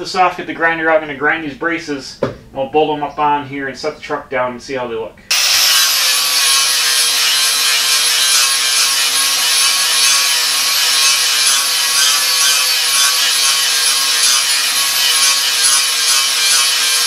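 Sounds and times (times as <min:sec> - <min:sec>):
angle grinder grinding steel: 0:05.3 - 0:17.0.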